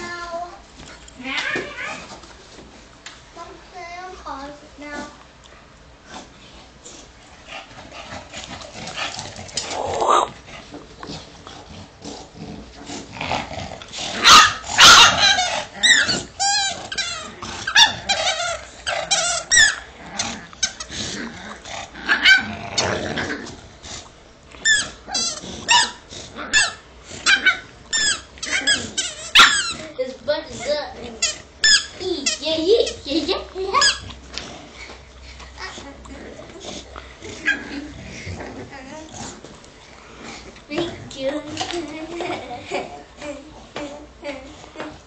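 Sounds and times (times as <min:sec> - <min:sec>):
dog growling: 0:06.0 - 0:32.2, 0:33.6 - 0:44.9
small dog yapping and barking: 0:14.2 - 0:19.8, 0:24.6 - 0:29.8.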